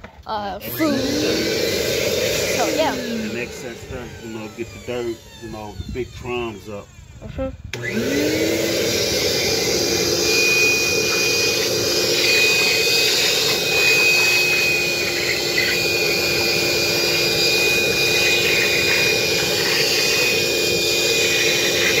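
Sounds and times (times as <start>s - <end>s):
vacuum cleaner whining: 0.6s - 22.0s.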